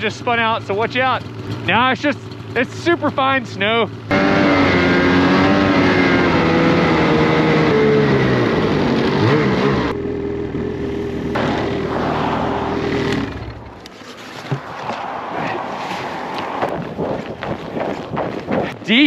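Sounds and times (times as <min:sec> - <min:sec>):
snowmobile engine running hard: 0:00.0 - 0:13.8, 0:14.9 - 0:19.0.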